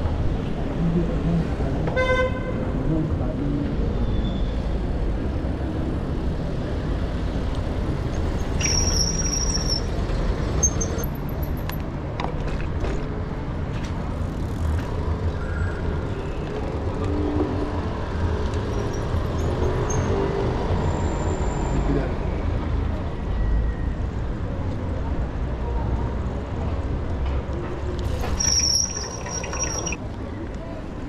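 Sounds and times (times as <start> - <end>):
city street traffic: 0.0 - 31.0
high squeal: 8.4 - 10.0, 28.1 - 30.0.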